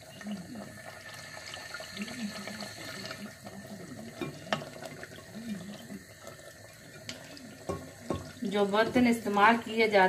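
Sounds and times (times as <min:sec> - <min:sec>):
ladle knocking against pot: 0:07.0 - 0:09.2.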